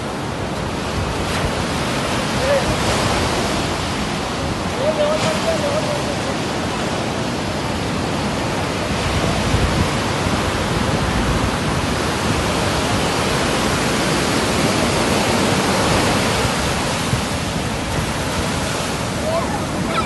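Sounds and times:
heavy surf breaking on sand: 0:00.0 - 0:20.0.

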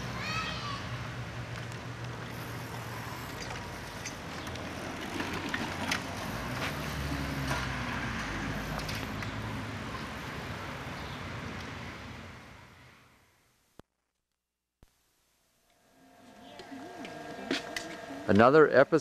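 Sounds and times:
bicycles rolling on concrete: 0:00.0 - 0:12.2, 0:16.2 - 0:19.0
outdoor street ambience: 0:00.0 - 0:14.1, 0:14.9 - 0:19.0.

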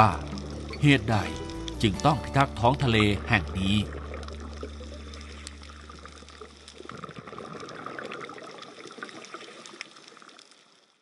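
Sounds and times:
small clicks and crackles: 0:00.2 - 0:01.8, 0:03.9 - 0:11.0
underwater watery hiss: 0:04.6 - 0:06.9.

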